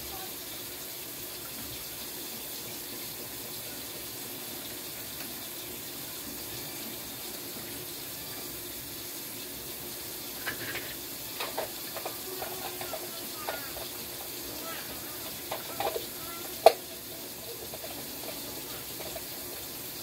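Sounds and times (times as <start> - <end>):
tap running into sink: 10.2 - 20.0.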